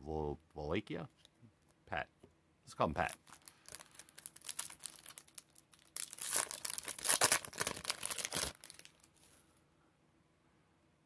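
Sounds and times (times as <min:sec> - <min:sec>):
wrapper crinkling being torn: 0:03.0 - 0:09.4.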